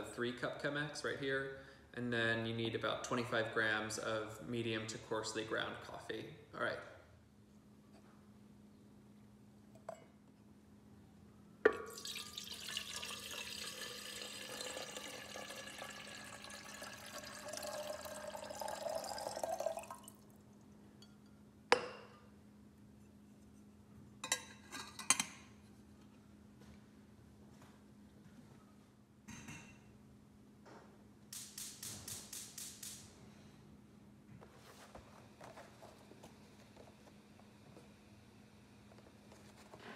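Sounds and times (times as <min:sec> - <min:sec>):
water pouring into kettle: 0:11.9 - 0:20.2.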